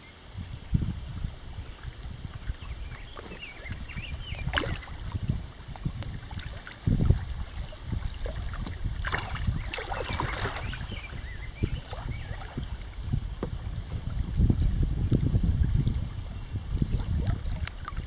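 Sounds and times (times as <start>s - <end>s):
wind rumbling on microphone: 0.0s - 18.0s
paddles splashing in water: 1.2s - 14.8s, 15.5s - 18.0s.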